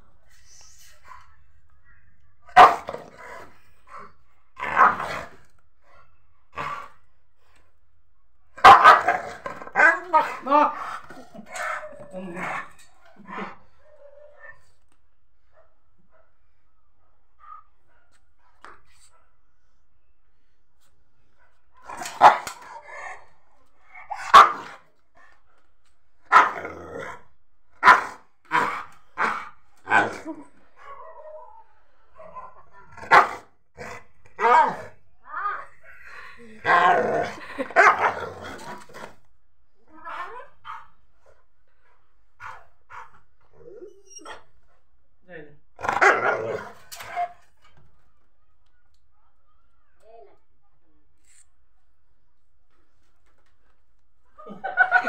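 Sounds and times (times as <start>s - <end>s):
dog barking: 2.5s - 3.0s, 8.6s - 9.4s, 24.2s - 24.8s, 33.1s - 33.5s.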